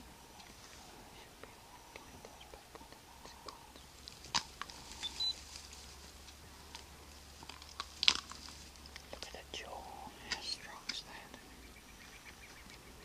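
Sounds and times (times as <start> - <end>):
animal gnawing on bones: 6.7 - 9.3.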